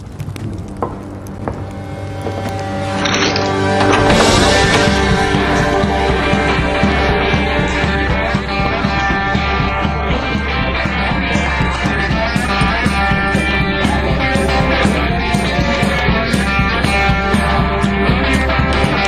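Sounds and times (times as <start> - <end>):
low bass line: 0.0 - 19.0
rock music with guitar: 0.6 - 19.0.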